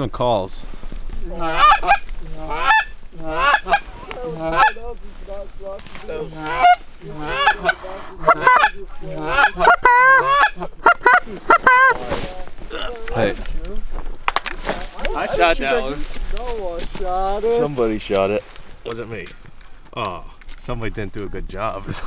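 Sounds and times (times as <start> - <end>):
goose honking: 1.3 - 12.3
goose clucking: 1.3 - 13.4.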